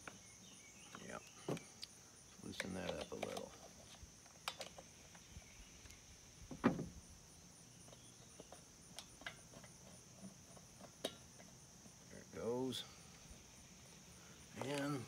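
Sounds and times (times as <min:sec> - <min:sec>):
crickets chirring: 0:00.0 - 0:15.0
hand tools clicking and tapping: 0:02.5 - 0:03.6, 0:07.8 - 0:12.0.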